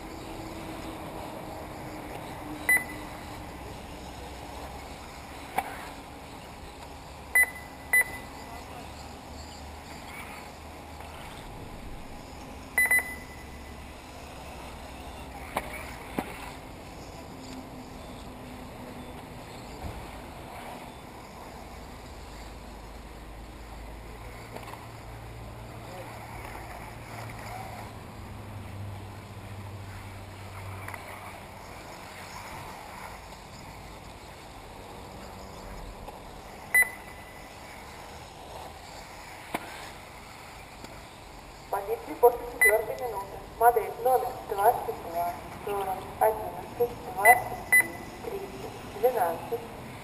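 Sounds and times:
faint rc cars running: 0:00.0 - 0:07.2, 0:07.8 - 0:42.5
short high electronic beeps: 0:02.7 - 0:03.0, 0:07.4 - 0:08.4, 0:12.8 - 0:13.7, 0:36.8 - 0:37.4, 0:47.2 - 0:48.2
steady hiss: 0:29.2 - 0:42.5.

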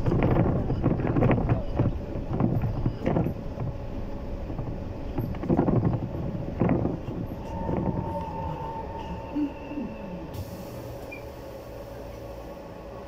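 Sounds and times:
bus body rattling and knocking: 0:00.0 - 0:11.6
trolleybus ride noise: 0:00.0 - 0:13.0
higher steady tone: 0:07.4 - 0:12.5.

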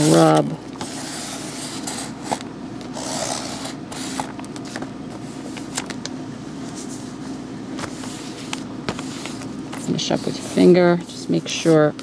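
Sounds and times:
steady low hum: 0:00.0 - 0:12.0
fingers rubbing paper: 0:03.0 - 0:04.2, 0:09.0 - 0:11.9.

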